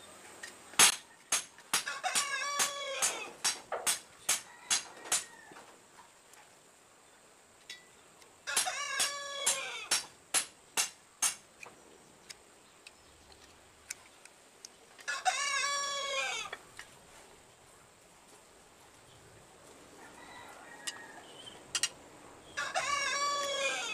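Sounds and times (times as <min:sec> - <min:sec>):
rooster crowing: 0:01.8 - 0:03.4, 0:04.4 - 0:05.7, 0:08.5 - 0:09.9, 0:15.1 - 0:16.6, 0:20.0 - 0:21.5, 0:22.6 - 0:23.9.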